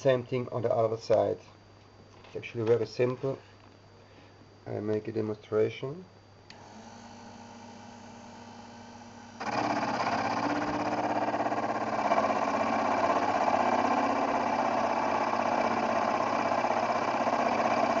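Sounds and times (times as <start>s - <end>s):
milling spindle motor running: 6.5s - 18.0s.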